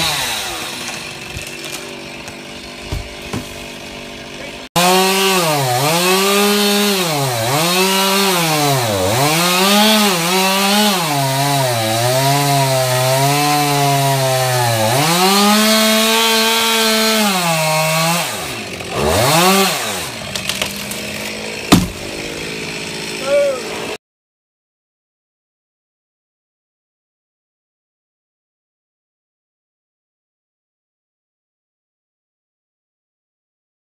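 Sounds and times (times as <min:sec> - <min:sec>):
chainsaw cutting under load: 0:00.0 - 0:24.0
tree trunk thudding on ground: 0:02.8 - 0:03.6, 0:20.2 - 0:22.4.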